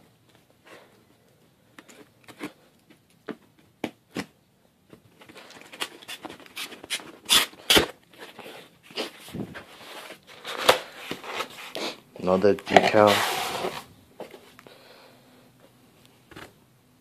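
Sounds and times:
tape and cardboard tearing: 5.6s - 8.0s
loud tape rips: 5.7s - 8.0s
blade scraping packing tape: 5.8s - 7.9s.

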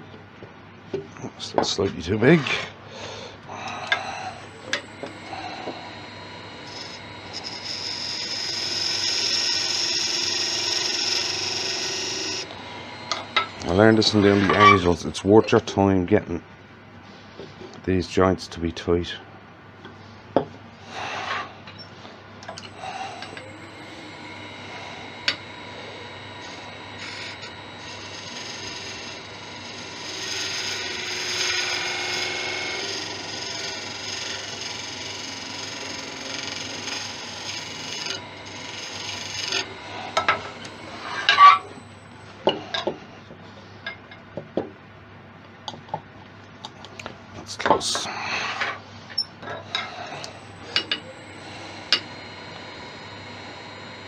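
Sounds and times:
lathe tool shaving wood: 3.5s - 15.0s, 22.6s - 42.0s, 49.7s - 54.0s.

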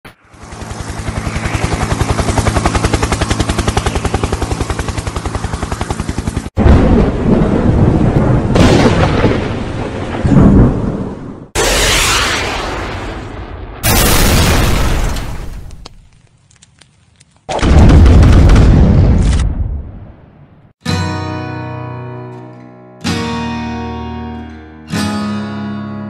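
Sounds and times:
helicopter rotor chopping: 0.1s - 6.6s
booms: 6.6s - 15.7s, 17.5s - 20.2s.

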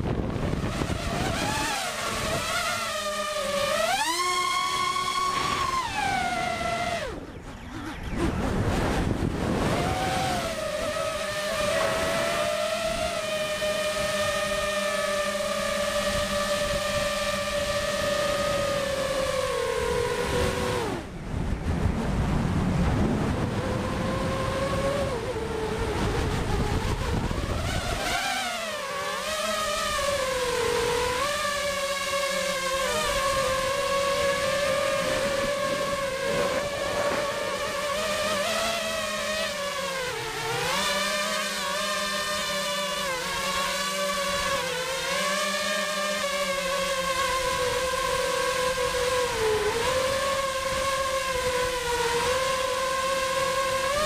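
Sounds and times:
wind buffeting microphone: 0.0s - 28.2s, 29.6s - 41.1s
drone propellers whining: 0.0s - 54.0s.

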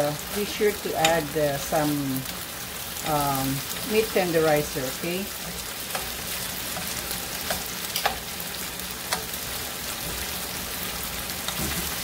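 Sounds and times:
meat sizzling in frying pan: 0.0s - 12.0s
metal tongs clicking on pan: 1.0s - 1.3s, 5.9s - 8.3s, 9.0s - 9.4s.

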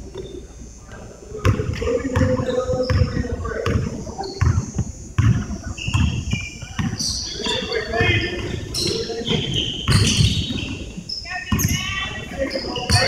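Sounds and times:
basketball bouncing on wooden floor: 1.4s - 7.0s.

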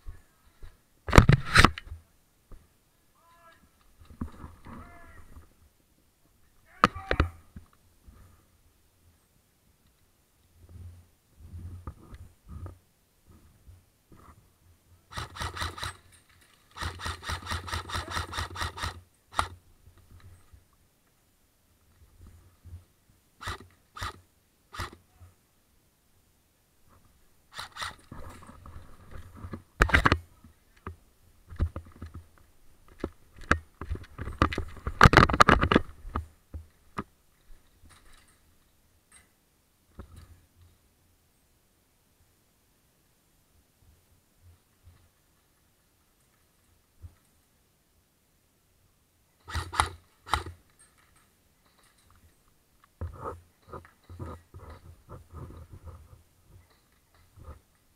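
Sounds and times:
airsoft rifle clatter and knocks: 27.8s - 38.5s, 49.4s - 57.9s.

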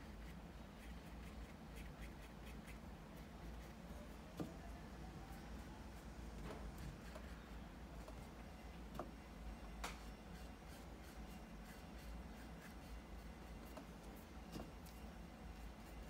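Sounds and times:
steady low hum: 0.0s - 16.0s
paintbrush brushing on paper: 10.0s - 16.0s.

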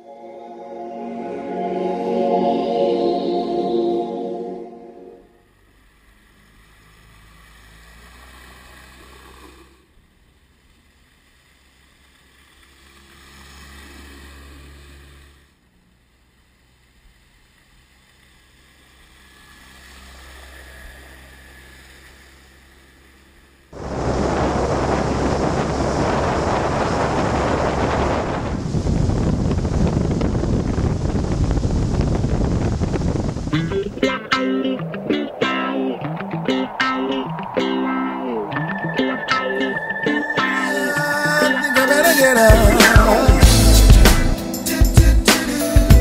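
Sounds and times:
wind on the microphone: 23.8s - 38.8s
boat water noise: 23.8s - 39.0s.

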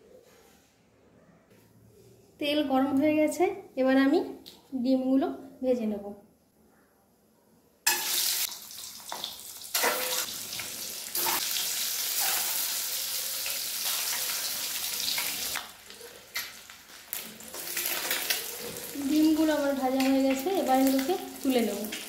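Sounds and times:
eggs sizzling in hot oil: 7.9s - 22.0s.

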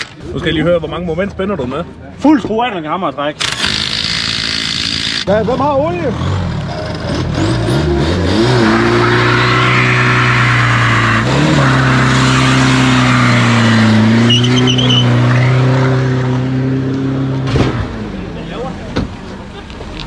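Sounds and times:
car engine revving high: 6.0s - 18.4s.

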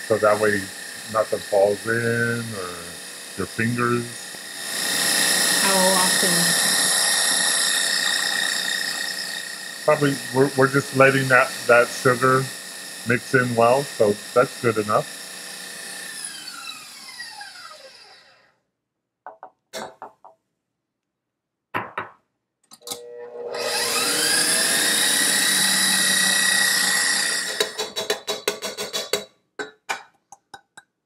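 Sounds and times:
stand mixer motor whining: 0.0s - 18.5s, 22.9s - 28.0s
small knocks: 19.3s - 20.4s.

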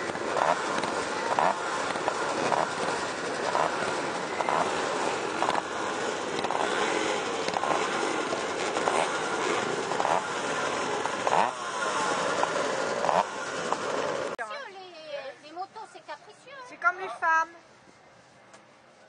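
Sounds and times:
motorcycle engines running: 0.0s - 14.6s.

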